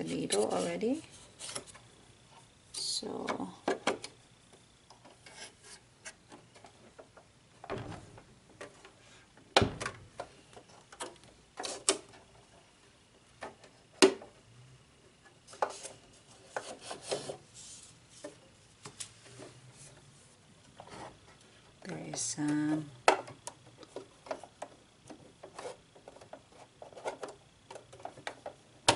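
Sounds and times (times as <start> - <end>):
handling plastic and cardboard: 20.6 - 28.9.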